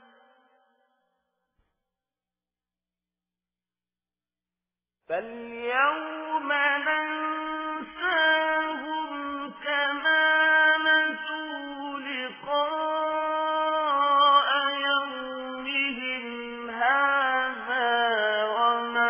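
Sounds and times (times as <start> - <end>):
person chanting recitation: 5.1 - 19.0.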